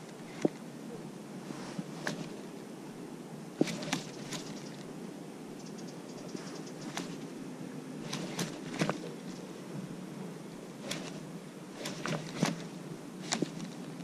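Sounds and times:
low rustle: 0:00.0 - 0:05.2, 0:06.2 - 0:14.0
fishing rod clicks and knocks: 0:03.6 - 0:04.9.

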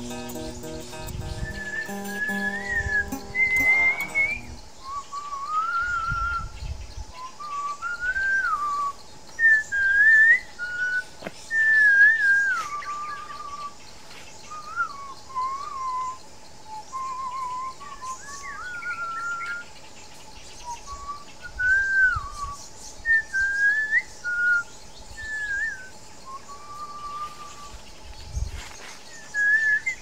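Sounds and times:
person whistling: 0:00.0 - 0:04.6.

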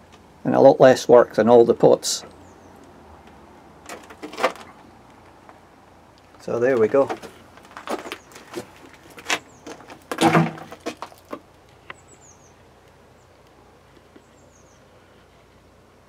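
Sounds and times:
low steady hiss: 0:00.0 - 0:16.0
camera handling knocks and rustles: 0:03.9 - 0:04.7, 0:07.0 - 0:11.4.

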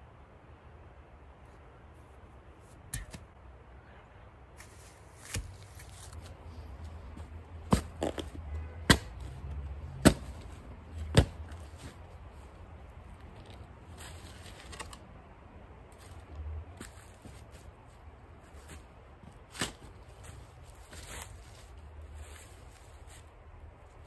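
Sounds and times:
shovel digging into soil: 0:02.8 - 0:03.3, 0:04.6 - 0:06.3
shovel blade chopping ground: 0:02.9 - 0:03.3, 0:04.6 - 0:06.1, 0:07.7 - 0:09.2, 0:10.0 - 0:10.4, 0:11.1 - 0:11.6.

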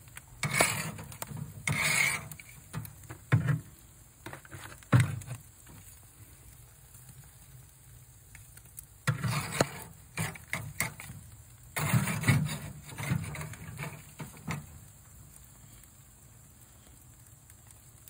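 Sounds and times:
metal utensils scraping grill grate: 0:00.4 - 0:05.4, 0:09.0 - 0:14.9.

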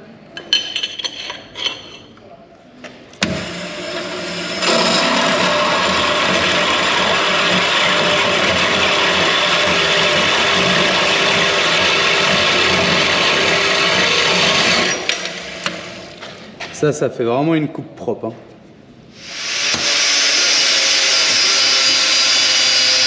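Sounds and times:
power tool cutting metal: 0:03.2 - 0:16.2, 0:19.2 - 0:23.0.

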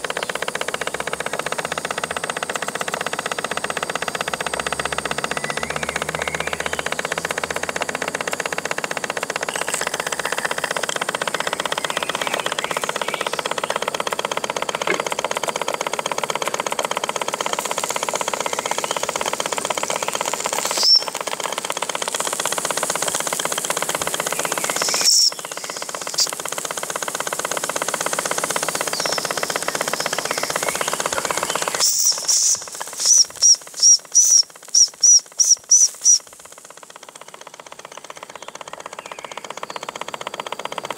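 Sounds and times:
model steam engine running: 0:00.0 - 0:40.9
short high-pitched chirps: 0:31.8 - 0:36.2.

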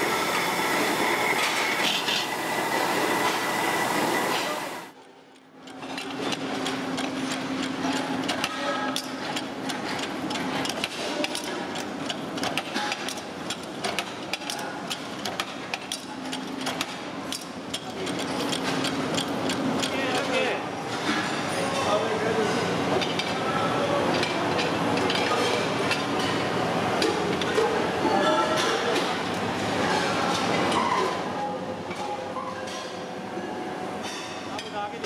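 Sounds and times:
buffing wheel rushing whine: 0:00.0 - 0:04.9.

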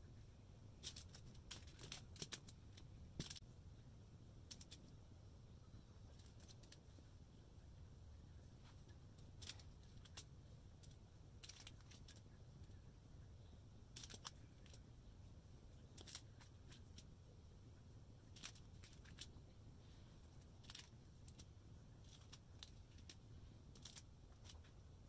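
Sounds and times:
quiet room hum: 0:00.0 - 0:25.0
plastic bags clicking and crinkling: 0:00.8 - 0:03.4, 0:09.4 - 0:12.2, 0:16.0 - 0:17.0, 0:18.4 - 0:19.4, 0:20.6 - 0:24.7.

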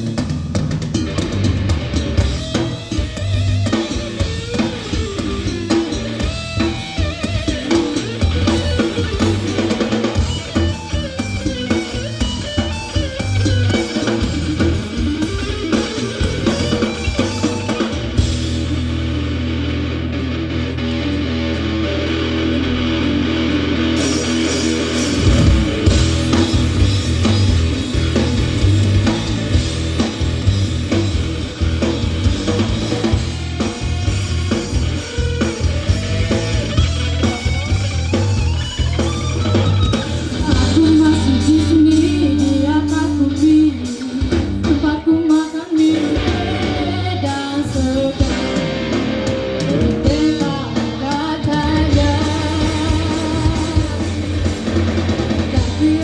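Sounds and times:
bass guitar: 0:00.0 - 0:56.0
drum kit: 0:00.0 - 0:56.0
electric guitars: 0:00.0 - 0:56.0
person singing: 0:40.3 - 0:48.9, 0:49.5 - 0:54.5, 0:55.2 - 0:56.0.

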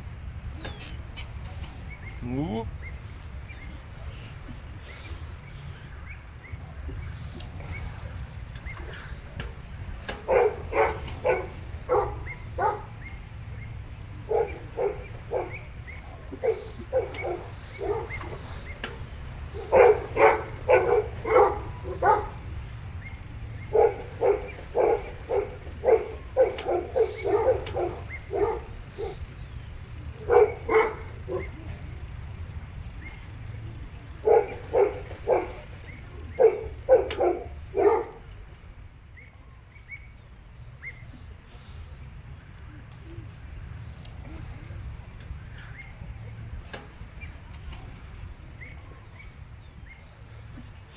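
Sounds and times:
dog barking: 0:10.2 - 0:13.0, 0:14.3 - 0:15.7, 0:16.3 - 0:18.4, 0:19.5 - 0:22.5, 0:23.6 - 0:29.2, 0:30.2 - 0:31.6, 0:34.2 - 0:38.2.

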